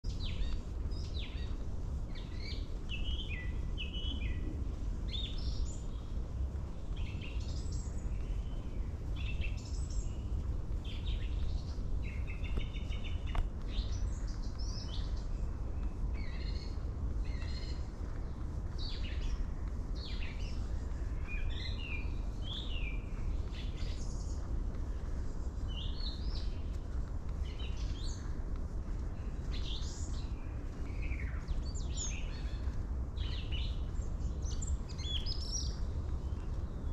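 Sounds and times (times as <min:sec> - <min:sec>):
songbirds chirping and trilling: 0:00.0 - 0:36.9
steady low rumble: 0:00.0 - 0:36.9.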